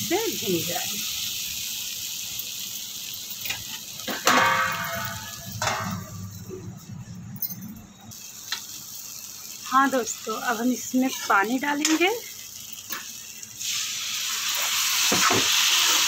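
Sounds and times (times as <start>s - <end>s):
vegetables sizzling in a pan: 0.0s - 6.9s, 8.1s - 16.0s
metal lid clanking on pan: 3.5s - 6.2s.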